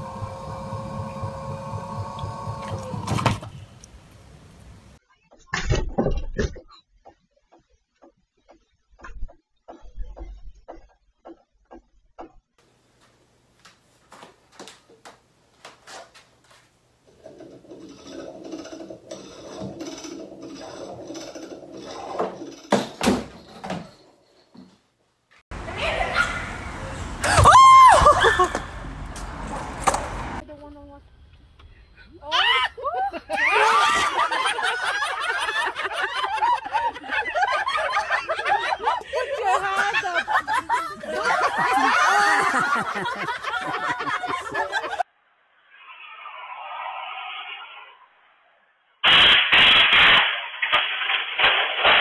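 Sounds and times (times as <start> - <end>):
gymnastic rings rig creaking: 15.7 - 24.8
people laughing: 27.2 - 28.7, 32.5 - 45.0
loud crash of rig falling: 49.0 - 52.0.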